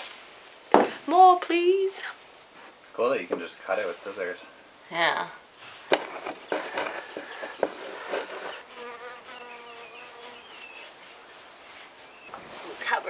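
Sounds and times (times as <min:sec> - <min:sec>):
handling clicks and rustles: 0:05.9 - 0:08.6.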